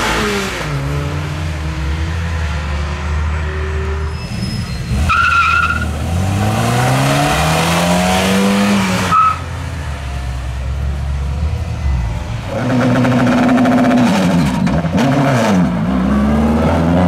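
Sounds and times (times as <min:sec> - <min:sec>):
tire squeal: 0:03.9 - 0:06.0, 0:09.0 - 0:09.5
car engine revving hard: 0:04.9 - 0:09.4, 0:12.5 - 0:17.0.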